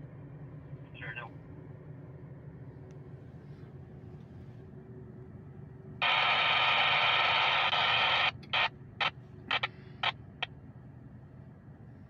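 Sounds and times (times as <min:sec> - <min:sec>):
short static crackles: 0:06.0 - 0:10.2
radio scanner static hiss: 0:06.0 - 0:10.5.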